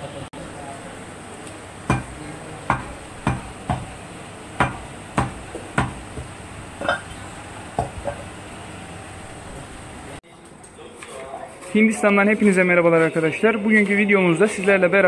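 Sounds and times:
cleaver chopping meat on wood: 0:01.9 - 0:04.0, 0:04.6 - 0:06.4.

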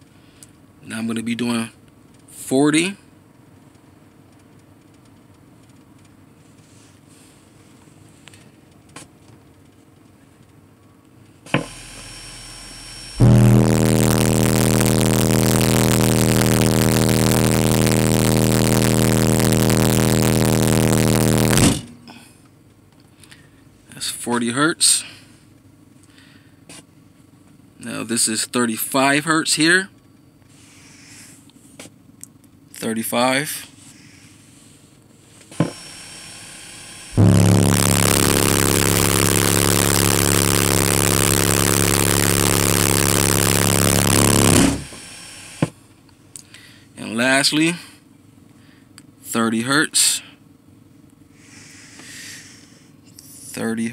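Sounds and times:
loud buzzing subwoofer drone: 0:11.5 - 0:22.2, 0:35.6 - 0:45.7.

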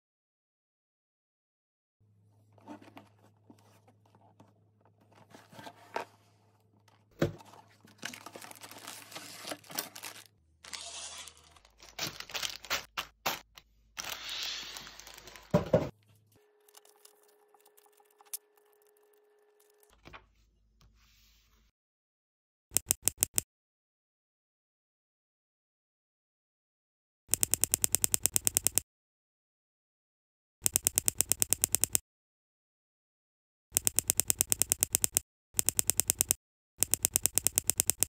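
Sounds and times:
paper booklet leafed through: 0:02.5 - 0:18.9
plastic bags crinkling: 0:07.4 - 0:13.4, 0:14.0 - 0:15.7.

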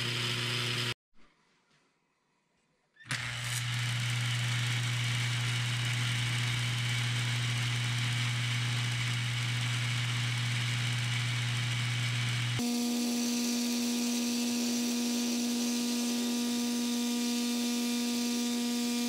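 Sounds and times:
toy vibrator mechanism buzzing: 0:03.1 - 0:16.2.

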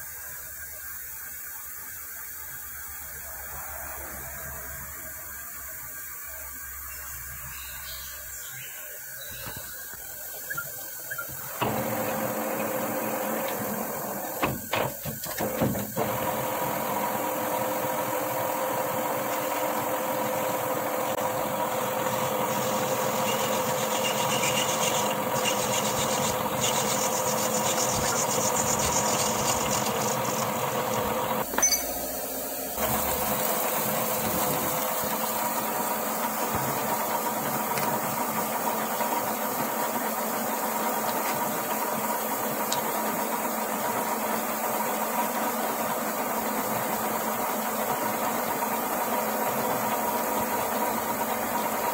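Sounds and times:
metal lathe gear whine: 0:10.2 - 0:43.8
lathe tool scraping metal: 0:22.0 - 0:31.9.

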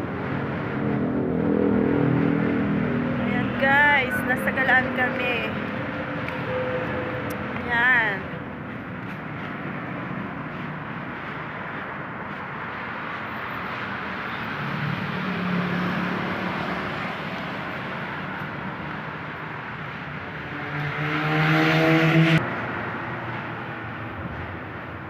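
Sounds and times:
vehicle engine passing close: 0:00.0 - 0:07.6, 0:13.7 - 0:24.5
passing road traffic: 0:00.0 - 0:25.0.

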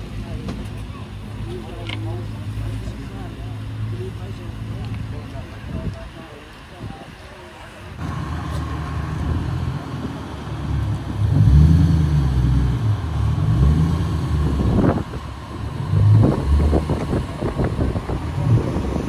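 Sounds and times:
car engine and exhaust running: 0:00.0 - 0:19.0
exhaust crackles: 0:07.5 - 0:19.0.

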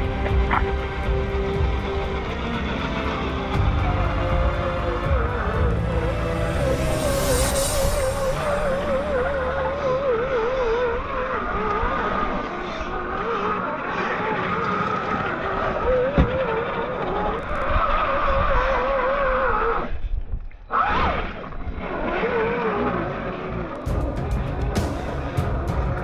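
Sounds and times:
tyres churning through mud: 0:00.0 - 0:07.0, 0:08.3 - 0:19.5
electric motor whining: 0:00.0 - 0:19.6.

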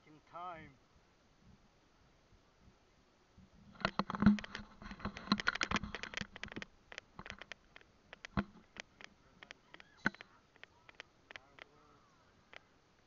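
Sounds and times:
camera handling clicks and taps: 0:03.8 - 0:11.7.

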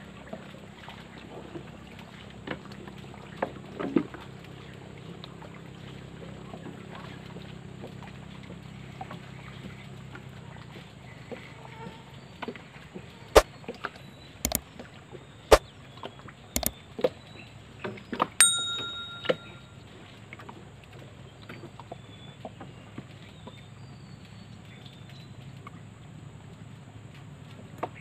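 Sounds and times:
bright bell ding: 0:18.4 - 0:19.8.

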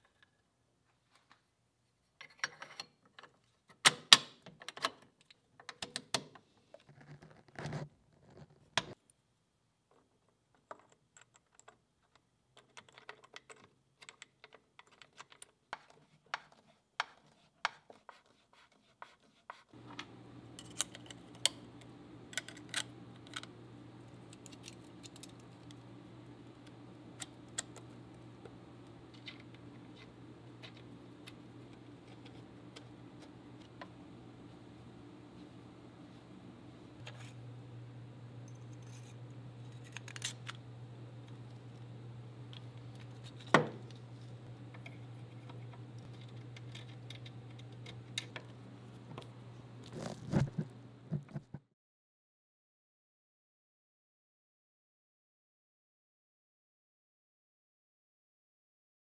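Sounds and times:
steady low hum: 0:19.8 - 0:51.6.

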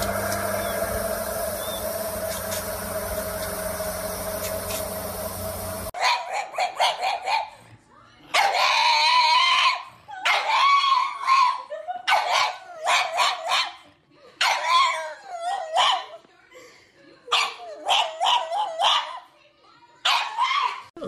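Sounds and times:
dog yipping and howling: 0:08.4 - 0:13.7, 0:14.4 - 0:16.2, 0:17.7 - 0:19.2.

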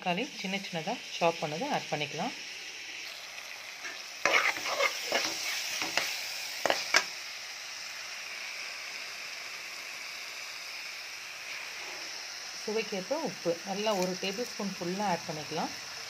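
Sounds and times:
tomatoes sizzling in oil: 0:00.0 - 0:16.0
metal ladle scraping pan: 0:03.8 - 0:06.1.

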